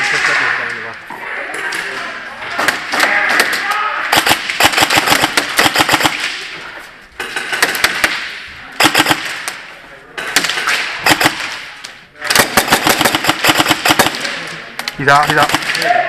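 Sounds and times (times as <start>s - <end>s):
airsoft guns firing bursts: 2.6s - 6.5s, 7.2s - 9.6s, 10.2s - 16.0s.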